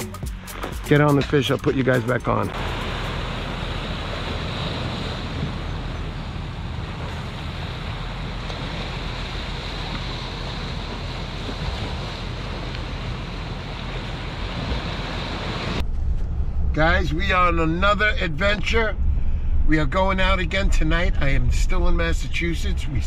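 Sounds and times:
small waves on rocky shore: 2.6 - 15.8.

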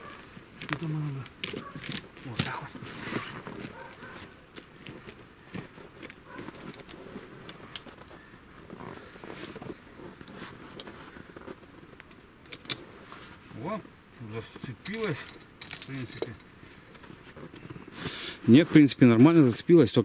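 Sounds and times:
steel chain clinking and rattling: 3.2 - 8.0, 12.4 - 12.9, 14.6 - 16.5.

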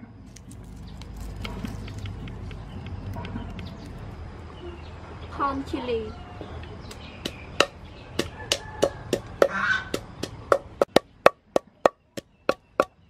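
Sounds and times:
pestle pounding in wooden mortar: 7.2 - 13.0.

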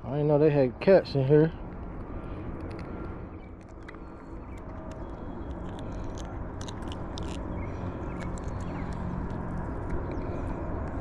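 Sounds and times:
wind rumbling on microphone: 0.7 - 11.0
hands handling fish clicks: 2.6 - 11.0.

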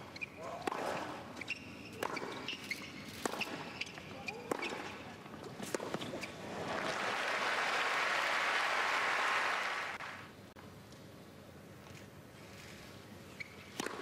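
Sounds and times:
tennis ball strikes: 1.9 - 5.0
crowd applauding and cheering: 6.6 - 10.3.

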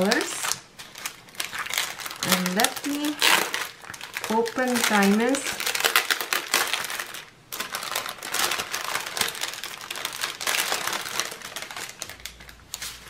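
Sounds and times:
plastic bags crinkling: 0.0 - 13.0.

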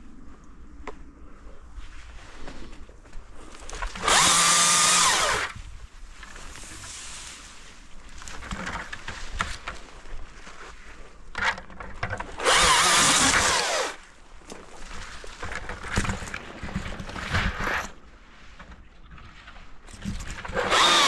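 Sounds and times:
rustling: 0.1 - 20.9
electric chainsaw motor bursts: 4.0 - 5.6, 12.4 - 14.0, 20.5 - 21.0.

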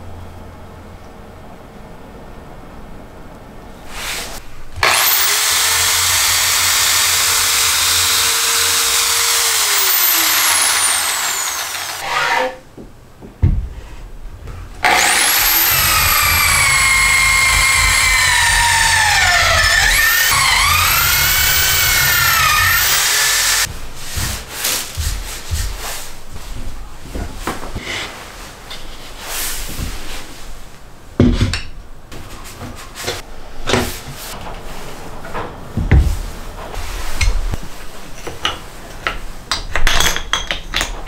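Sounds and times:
electric drill boring into wood: 4.8 - 12.0, 14.8 - 23.7.

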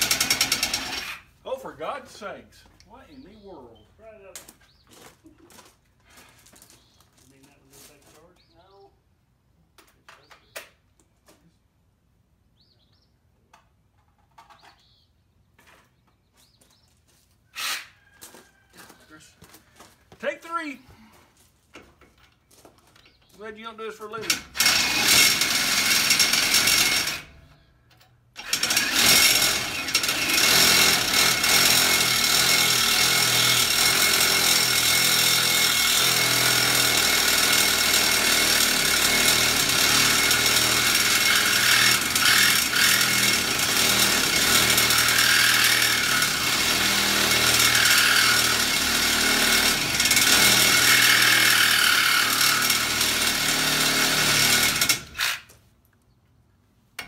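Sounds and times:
reciprocating saw cutting steel: 0.0 - 1.3, 17.6 - 18.0, 24.2 - 27.4, 28.4 - 55.5.

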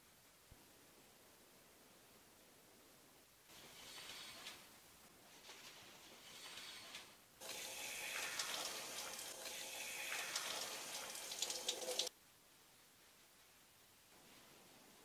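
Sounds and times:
shower water spraying and splashing: 7.4 - 12.1.

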